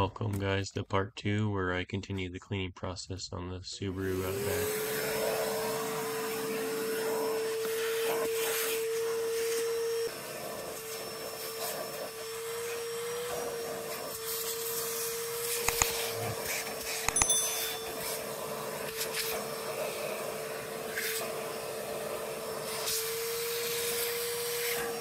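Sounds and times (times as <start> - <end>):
vacuum cleaner running: 3.9 - 25.0
sharp clicks: 15.6 - 16.0.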